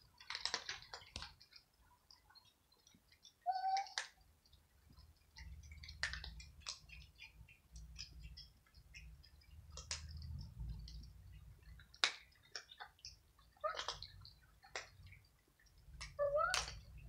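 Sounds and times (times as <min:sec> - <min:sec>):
cats crunching dry kibble: 0:00.1 - 0:01.7, 0:05.2 - 0:15.2.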